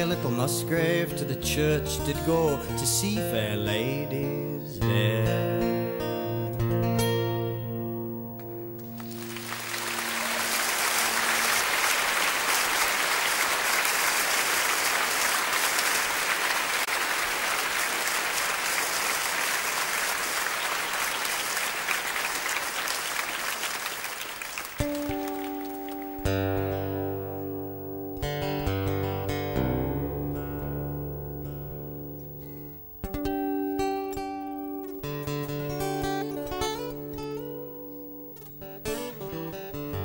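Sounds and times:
acoustic guitar playing: 0:00.0 - 0:11.9, 0:24.8 - 0:40.0
audience applauding: 0:08.8 - 0:26.4.

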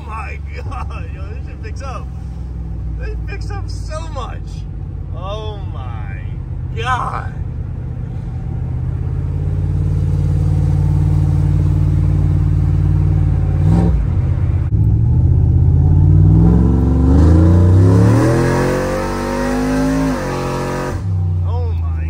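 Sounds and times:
engine revving under acceleration: 0:06.4 - 0:21.4.

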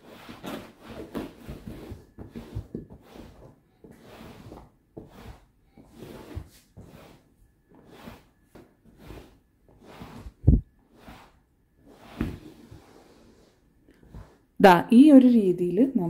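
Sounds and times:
cloth swishing on upholstery: 0:04.0 - 0:14.4.

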